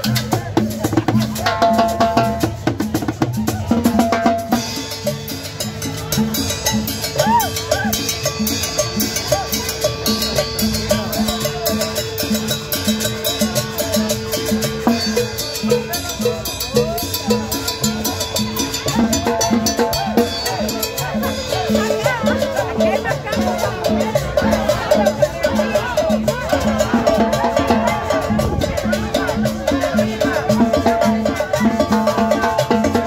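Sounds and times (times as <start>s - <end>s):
cumbia band playing: 0.0s - 33.0s
drums and timbales beat: 0.0s - 33.0s.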